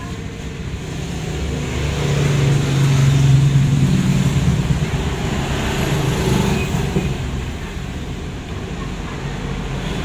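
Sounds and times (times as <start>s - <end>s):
vehicle engine passing by: 0.6s - 7.6s.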